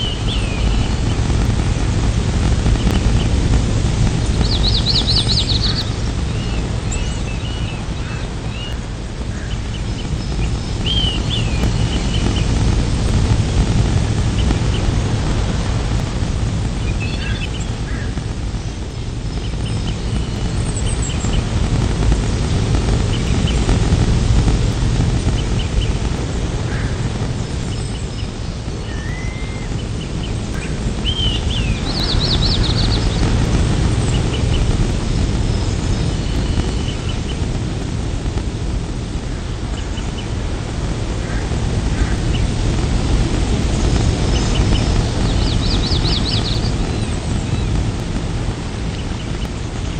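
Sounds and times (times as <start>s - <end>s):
even rushing hiss: 0.0s - 49.9s
low rumble: 0.0s - 49.9s
faint bird chirps: 26.7s - 33.2s.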